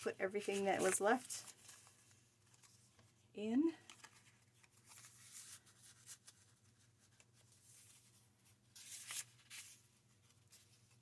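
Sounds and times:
paper pages rustling and sliding: 0.0 - 3.2, 3.9 - 11.0.

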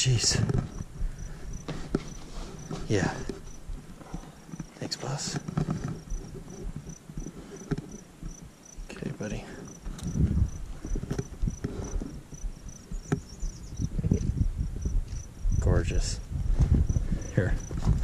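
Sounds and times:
insect chirping: 0.1 - 18.0.

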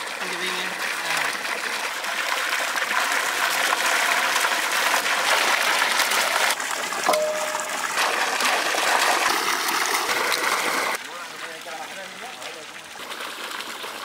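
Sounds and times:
water splashing into steel bowl: 0.0 - 11.1
water gushing from a pipe: 0.0 - 14.0
short ring: 7.1 - 7.8.

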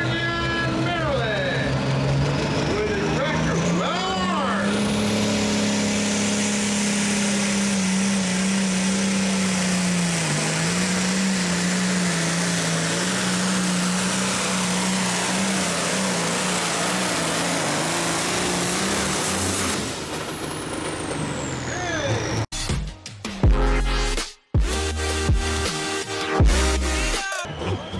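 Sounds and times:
high whine winding down: 0.0 - 22.5
tractor diesel engine at full throttle: 0.0 - 22.5.

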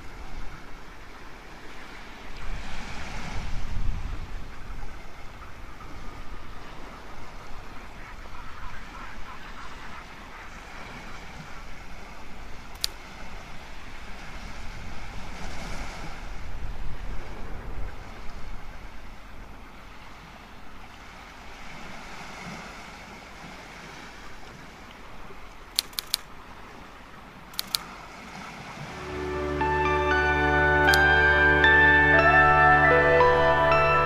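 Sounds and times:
low wind rumble: 0.0 - 34.0
sharp clicks: 12.7 - 13.0, 25.7 - 26.3, 27.5 - 27.9, 30.8 - 31.1.

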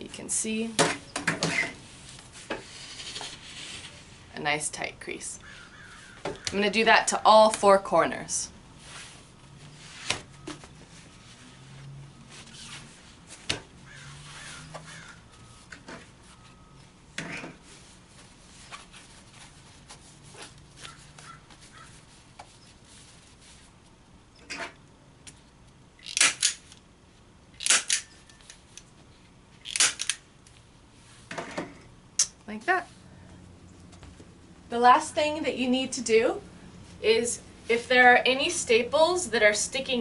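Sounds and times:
canvas cloth rustling: 8.7 - 16.7, 17.6 - 23.9.

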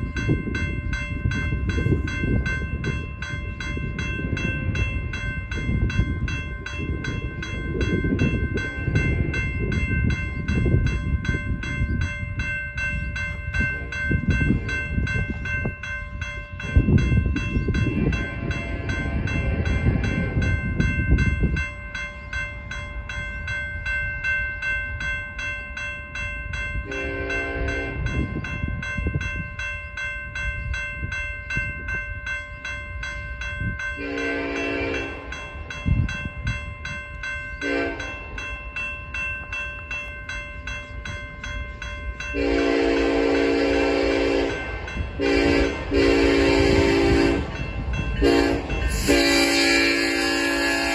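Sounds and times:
railroad crossing bell ringing: 0.0 - 50.9
train air horn blasts: 26.9 - 28.1, 34.0 - 35.2, 37.6 - 38.1, 42.4 - 47.6, 48.2 - 50.9.

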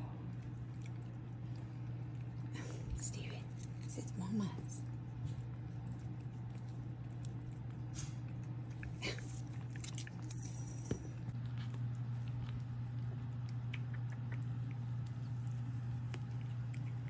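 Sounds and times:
cats licking and chewing: 0.0 - 17.0
steady low hum: 0.0 - 17.0.

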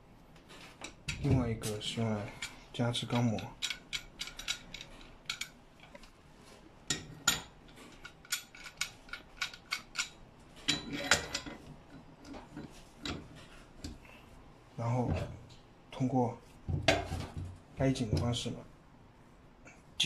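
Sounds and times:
wrenches clinking on metal: 2.3 - 5.6, 6.9 - 13.3.

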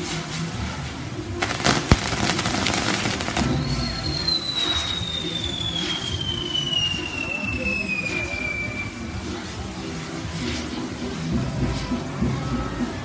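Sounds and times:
fireworks crackling: 0.0 - 11.8
loud firework bang: 1.4 - 6.1
high falling firework whistle: 1.4 - 9.1.

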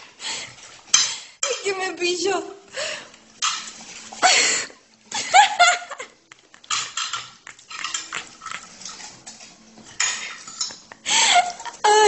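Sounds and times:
plate clinking and scraping: 3.4 - 4.2, 6.6 - 10.9.

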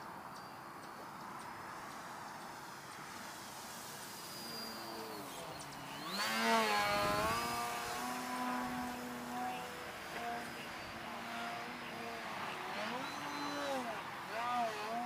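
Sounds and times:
model plane flying by: 3.4 - 15.0.

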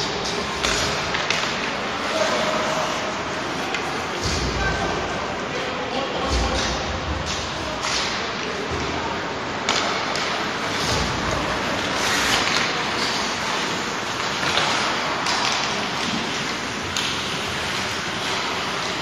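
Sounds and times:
hockey sticks and puck knocking: 0.0 - 2.0, 6.3 - 9.0, 9.6 - 19.0
skates hissing on ice: 11.4 - 19.0.

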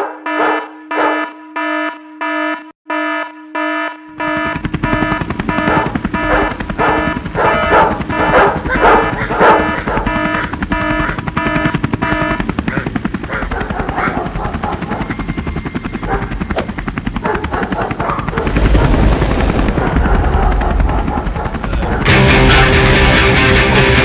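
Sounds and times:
fast chopping pulse: 4.3 - 15.0, 16.4 - 21.6
sharp click: 16.5 - 16.8.

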